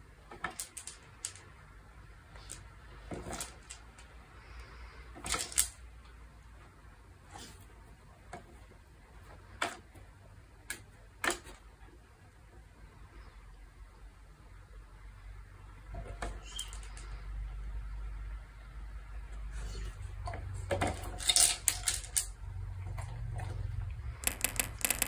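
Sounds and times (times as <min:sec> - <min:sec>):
plastic cups clicking and knocking: 0:20.4 - 0:22.4, 0:24.2 - 0:25.0.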